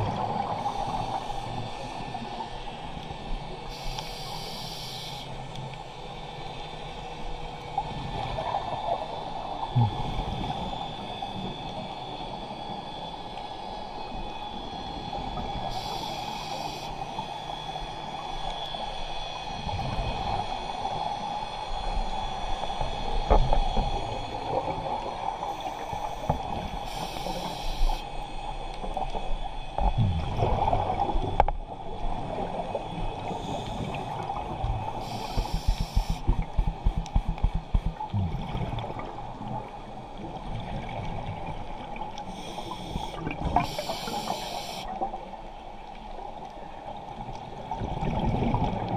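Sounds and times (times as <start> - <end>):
underwater hiss and rumble: 0.0 - 48.9
low gurgles: 7.6 - 16.3, 22.0 - 44.1
bubbly regulator exhalations: 30.0 - 31.0, 35.0 - 39.1.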